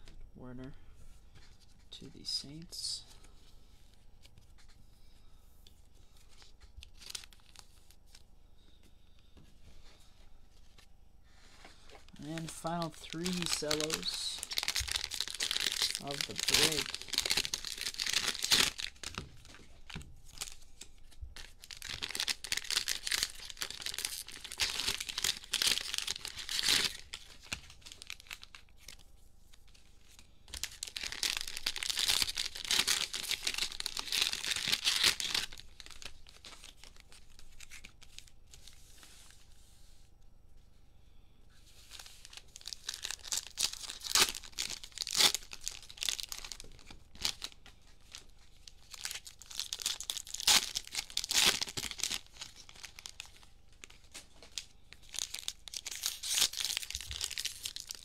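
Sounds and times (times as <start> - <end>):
cellophane wrappers tearing and crinkling: 6.3 - 8.2, 12.0 - 29.0, 29.6 - 38.8, 41.8 - 58.0.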